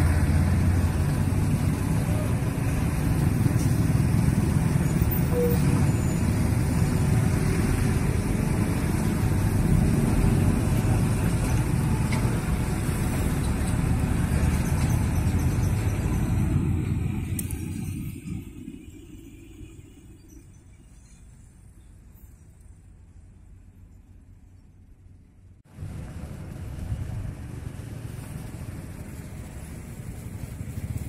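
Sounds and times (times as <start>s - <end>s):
diesel truck engine rumbling: 0.0s - 21.0s
passing cars and motorcycles: 0.0s - 21.8s, 23.2s - 31.0s.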